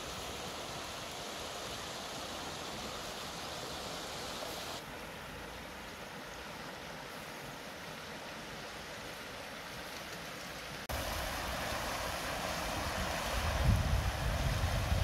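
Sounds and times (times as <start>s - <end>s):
river running over stones: 0.0s - 15.0s
wind rumbling on microphone: 10.9s - 15.0s.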